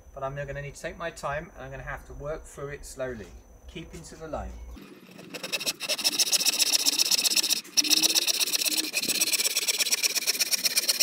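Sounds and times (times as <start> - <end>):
hand saw cutting wood: 4.8 - 11.0.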